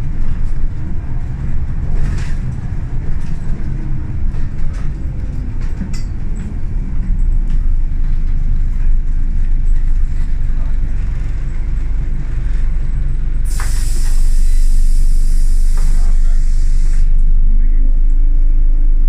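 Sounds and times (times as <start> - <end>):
interior rattles and clicks: 0.0 - 14.3
bus diesel engine running: 0.0 - 19.0
road noise: 0.0 - 19.0.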